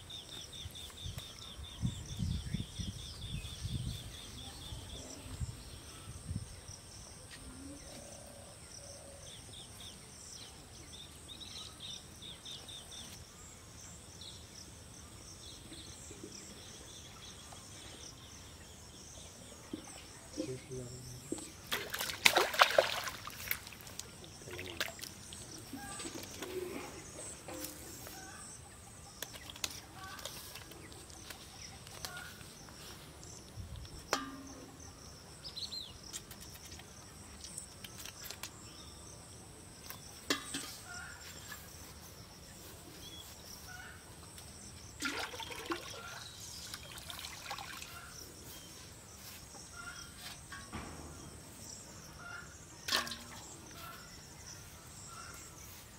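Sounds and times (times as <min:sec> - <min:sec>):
pond water splashing: 0:21.2 - 0:28.3, 0:29.1 - 0:32.4, 0:44.8 - 0:54.6
water sloshing in a pot: 0:21.5 - 0:26.5, 0:40.3 - 0:41.0, 0:45.0 - 0:48.2, 0:52.8 - 0:54.0.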